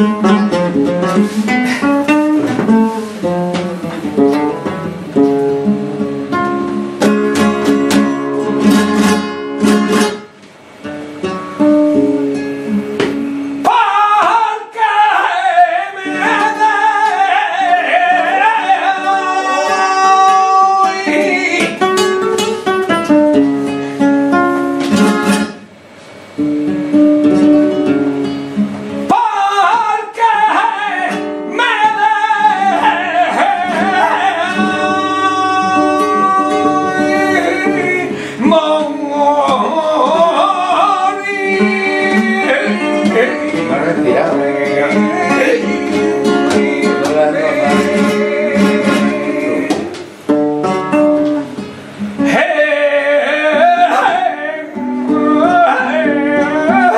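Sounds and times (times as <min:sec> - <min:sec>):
acoustic flamenco guitar: 0:00.0 - 0:56.9
man singing melismatic lines: 0:11.6 - 0:25.3, 0:28.9 - 0:50.3, 0:51.4 - 0:56.9.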